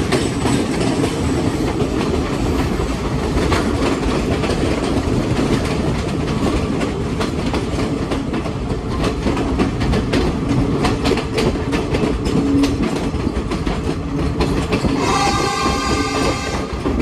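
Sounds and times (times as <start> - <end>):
train rumble inside carriage: 0.0 - 17.0
wheels clickety-clack: 0.0 - 17.0
train horn: 14.9 - 17.0.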